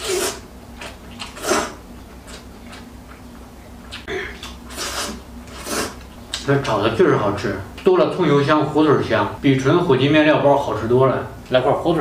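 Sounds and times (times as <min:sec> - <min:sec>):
person slurping noodles: 0:00.0 - 0:00.4, 0:01.2 - 0:01.8, 0:04.2 - 0:06.0
person chewing: 0:00.0 - 0:06.4.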